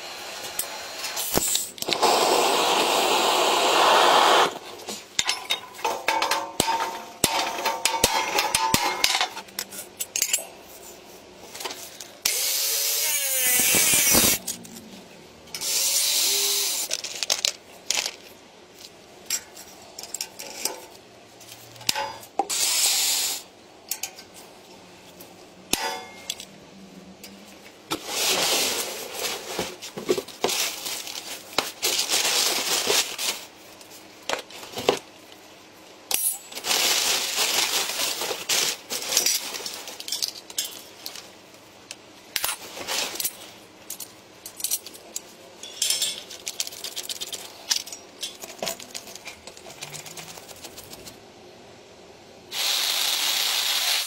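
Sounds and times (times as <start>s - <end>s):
scraping with metallic clinks: 42.4s - 50.4s.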